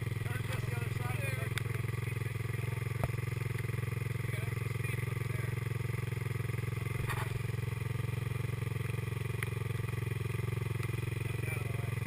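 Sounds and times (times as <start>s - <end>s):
atv engine idling: 0.0s - 12.0s.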